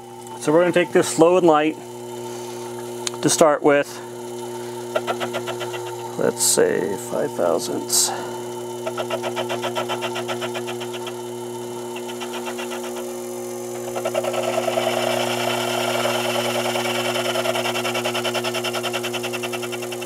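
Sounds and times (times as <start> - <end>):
lathe motor hum: 0.0 - 20.0
lathe cutter cutting metal: 8.7 - 20.0.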